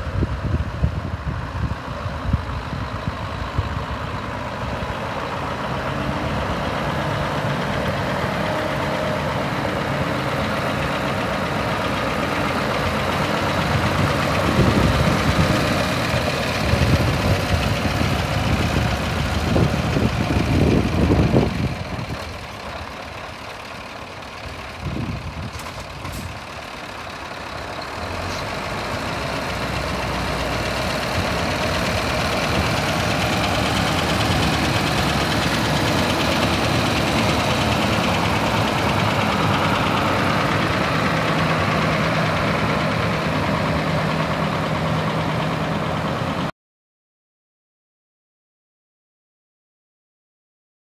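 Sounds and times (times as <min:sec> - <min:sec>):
diesel truck engine idling: 0:00.0 - 0:46.5.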